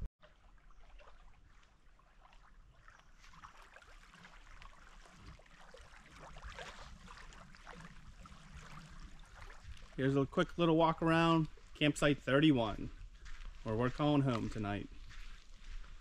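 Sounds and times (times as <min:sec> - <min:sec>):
water lapping at shore: 0:00.0 - 0:16.0
small splashes: 0:00.2 - 0:12.0.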